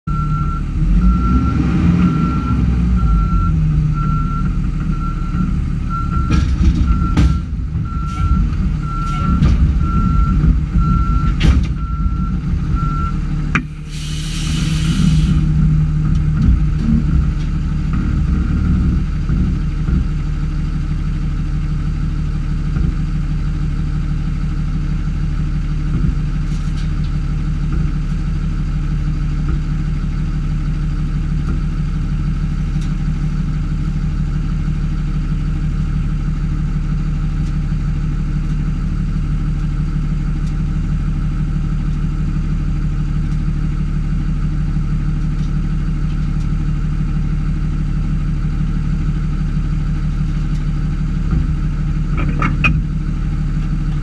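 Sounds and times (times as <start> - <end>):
reversing alarm beeping: 0.1 - 13.2
diesel engine running: 0.1 - 54.0
air hiss: 13.8 - 15.5.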